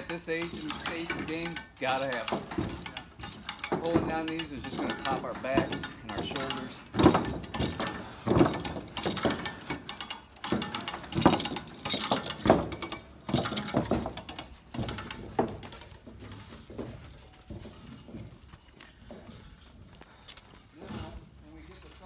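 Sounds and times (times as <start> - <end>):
winch ratchet clicking: 0.0 - 16.0
metal parts clanking: 0.0 - 19.8.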